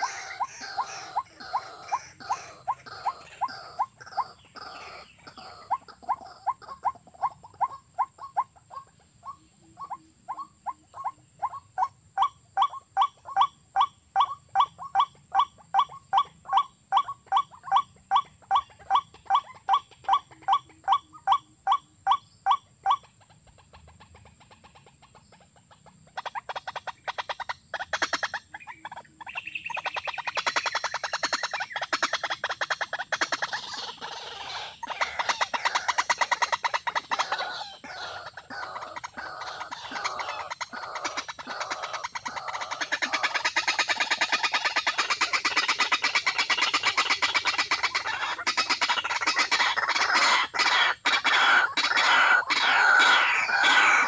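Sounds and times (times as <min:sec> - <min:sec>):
waterhen calling: 0:00.0 - 0:24.0, 0:25.5 - 0:54.0.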